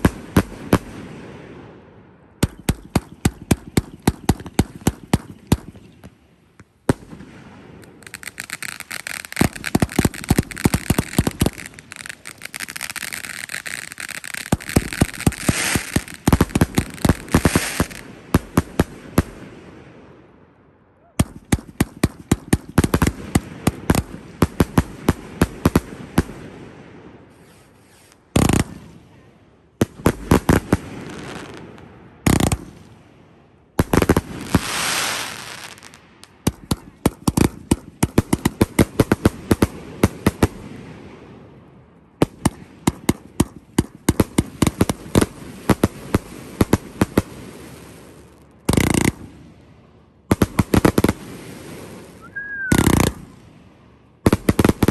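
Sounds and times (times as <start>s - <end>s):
fireworks bangs and crackling: 0.0s - 20.3s, 21.2s - 54.9s
heavy firework reports: 52.2s - 53.3s.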